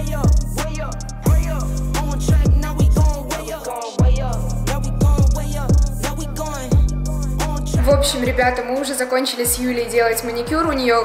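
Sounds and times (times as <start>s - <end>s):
rapping over a beat: 0.0s - 11.0s
deep bass drum hits: 1.3s - 1.6s.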